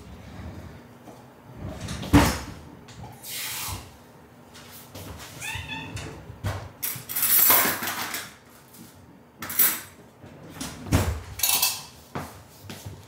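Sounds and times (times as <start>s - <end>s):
kitchenware clattering and scraping: 6.8s - 8.4s, 10.6s - 12.0s.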